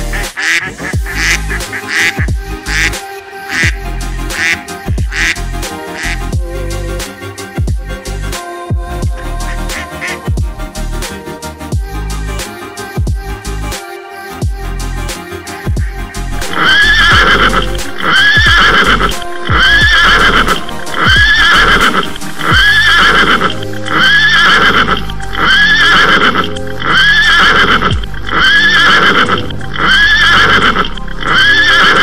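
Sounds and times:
music with a beat: 0:00.0 - 0:27.0
horse whinny: 0:16.5 - 0:32.0.

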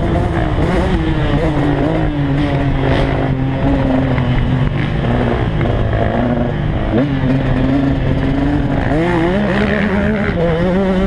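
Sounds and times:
dirt bike engine running: 0:00.0 - 0:11.0.

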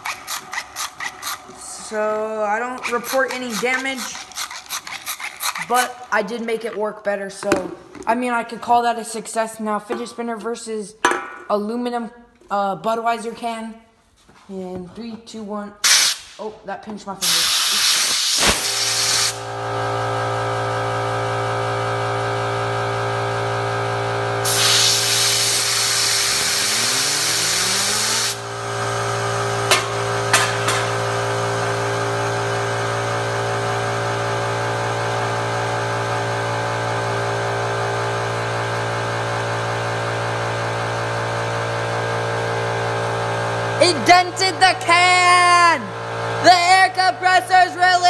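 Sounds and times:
fidget spinner whine: 0:00.0 - 0:06.3
air compressor motor humming: 0:00.0 - 0:06.8, 0:17.2 - 0:48.0
air blow gun hissing: 0:15.8 - 0:16.4, 0:17.2 - 0:19.5, 0:24.4 - 0:28.6.

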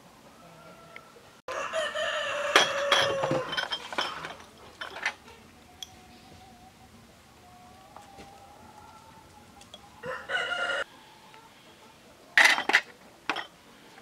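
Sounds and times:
rooster crowing: 0:00.4 - 0:03.6, 0:07.5 - 0:11.0.

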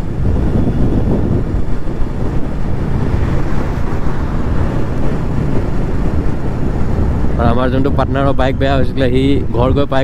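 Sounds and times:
motorcycle engine rumble: 0:00.0 - 0:10.0
wind buffeting microphone: 0:00.0 - 0:10.0.

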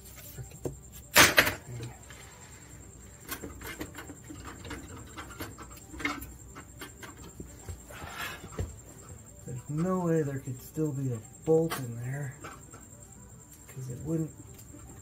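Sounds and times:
sharp metal knocks and clunks: 0:01.1 - 0:01.8.

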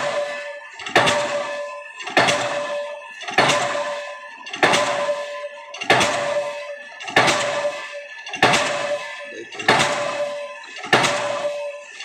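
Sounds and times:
pile hammer blows: 0:00.0 - 0:11.9
metallic ring: 0:00.0 - 0:12.0.

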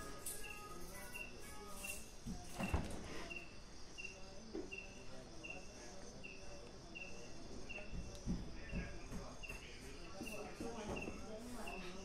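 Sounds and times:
high-pitched insect drone: 0:00.0 - 0:06.4
cricket chirping: 0:00.0 - 0:12.0.

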